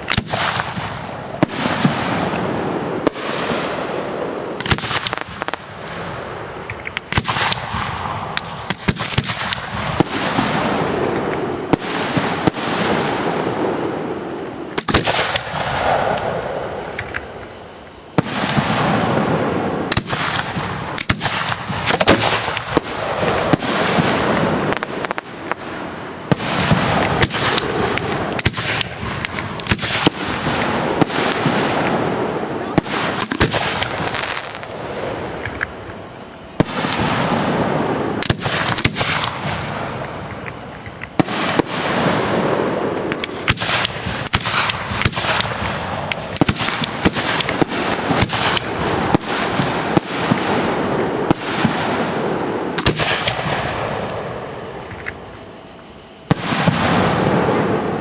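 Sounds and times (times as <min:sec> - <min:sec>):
fireworks bangs and crackles: 0:00.0 - 0:58.0.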